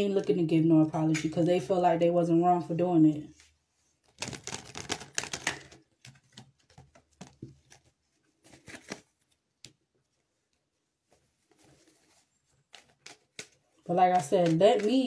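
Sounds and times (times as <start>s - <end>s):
cards being shuffled: 3.4s - 9.8s, 11.1s - 15.0s.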